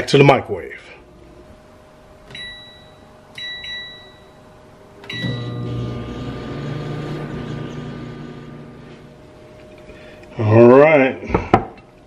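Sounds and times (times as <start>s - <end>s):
microwave oven humming: 1.0s - 10.6s
microwave keypad beeps: 2.3s - 4.4s, 5.0s - 5.8s.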